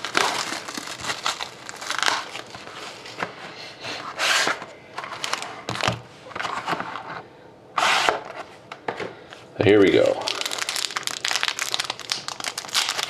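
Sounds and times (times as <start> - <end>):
plastic wrapping crinkling: 0.0 - 3.1, 9.9 - 13.0.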